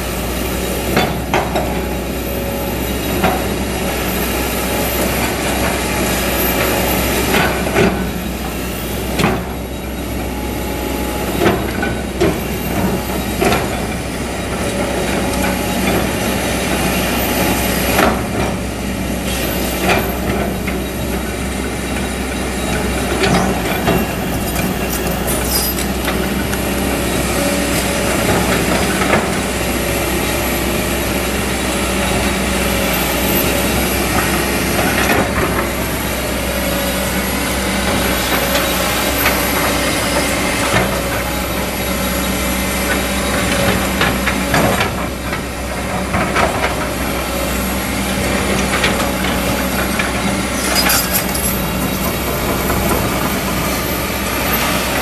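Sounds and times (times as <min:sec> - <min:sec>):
excavator diesel engine running: 0:00.0 - 0:55.0
bucket clanks and scrapes: 0:23.8 - 0:26.6, 0:49.9 - 0:53.0.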